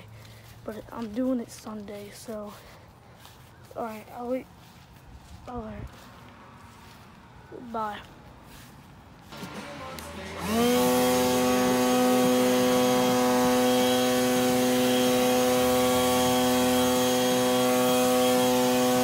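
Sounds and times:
leaf blower running: 0:00.0 - 0:03.9, 0:05.5 - 0:07.4, 0:08.0 - 0:19.0.

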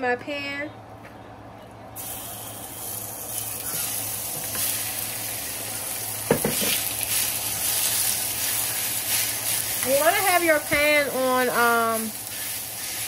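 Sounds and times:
chicken sizzling in oil: 0:02.0 - 0:13.0
spatula knocking against pan: 0:06.3 - 0:06.8.

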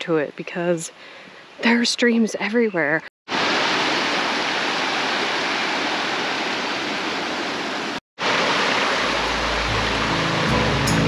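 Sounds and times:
stream rushing over rocks: 0:03.3 - 0:11.0.

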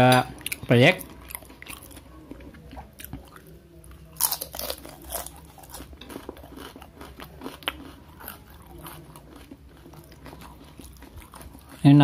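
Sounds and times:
crunching cracker: 0:04.1 - 0:12.0.

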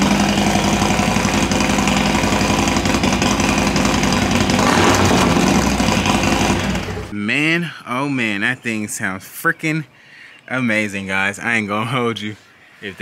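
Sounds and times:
motorcycle engine idling: 0:00.0 - 0:07.1.

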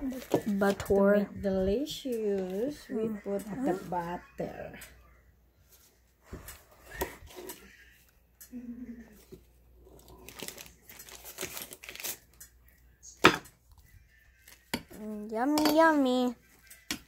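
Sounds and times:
crinkling and rustling: 0:00.0 - 0:04.1, 0:09.1 - 0:12.5.

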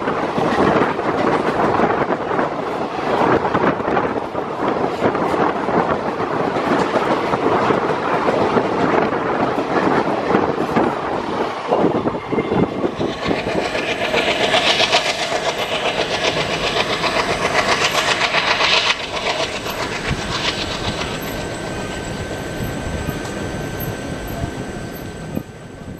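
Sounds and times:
distant train rumble: 0:00.0 - 0:25.9.

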